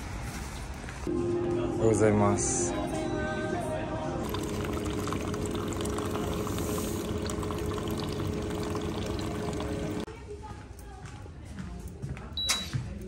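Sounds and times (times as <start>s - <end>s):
coffee machine hum: 4.2s - 10.1s
liquid pouring into cup: 4.2s - 10.1s.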